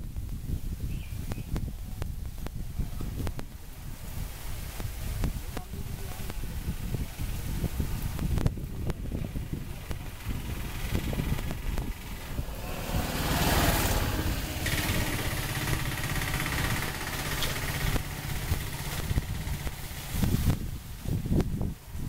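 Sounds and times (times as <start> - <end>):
engine low pulsing rumble: 5.7 - 22.0.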